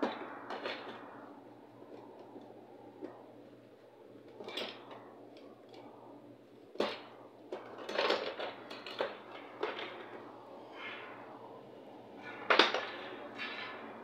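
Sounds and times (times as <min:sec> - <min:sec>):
steady low hum: 0:00.0 - 0:14.0
tools rattling and scraping: 0:04.2 - 0:06.0, 0:06.7 - 0:14.0.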